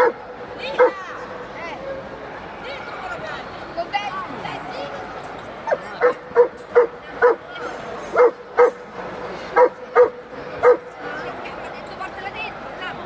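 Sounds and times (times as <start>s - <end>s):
dog barking: 0.8s - 1.0s, 5.7s - 7.4s, 8.1s - 8.8s, 9.6s - 10.9s.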